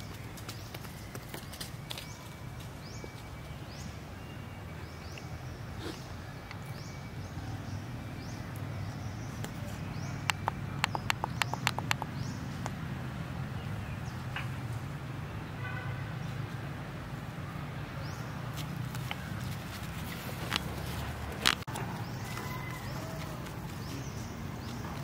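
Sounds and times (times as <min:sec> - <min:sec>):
rapid sharp clicks: 0:10.2 - 0:12.8.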